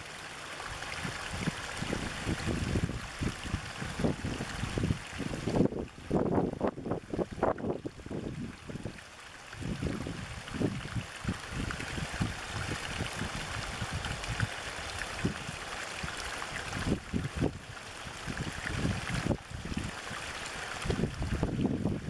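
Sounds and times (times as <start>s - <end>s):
low gurgling water: 0.0s - 22.0s
stream pouring into a pool: 0.0s - 22.0s.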